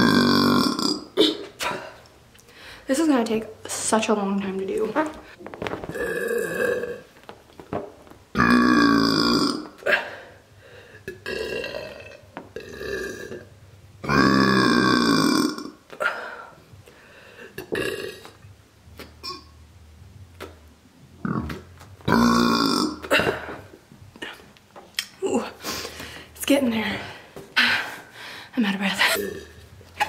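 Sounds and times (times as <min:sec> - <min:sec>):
woman burping: 0:00.0 - 0:02.1, 0:05.9 - 0:07.1, 0:08.4 - 0:10.3, 0:11.0 - 0:16.5, 0:17.6 - 0:18.4, 0:19.2 - 0:19.5, 0:21.2 - 0:25.6, 0:29.0 - 0:29.6.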